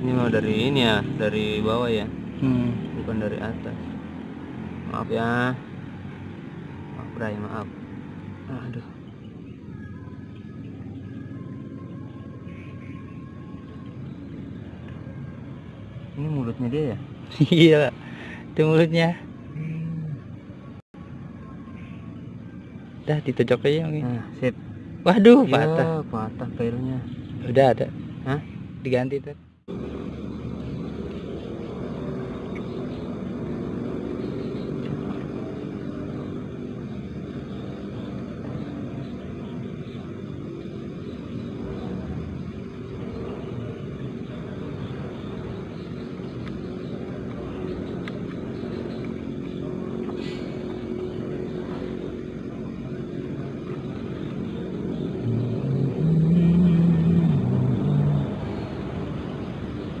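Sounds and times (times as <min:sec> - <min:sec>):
deep drone: 0:29.6 - 1:00.0
low motor hum: 0:29.7 - 1:00.0.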